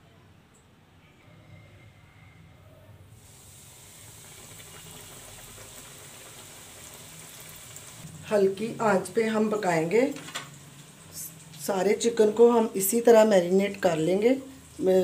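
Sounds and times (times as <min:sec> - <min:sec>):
chicken sizzling in hot oil: 0:03.2 - 0:15.0.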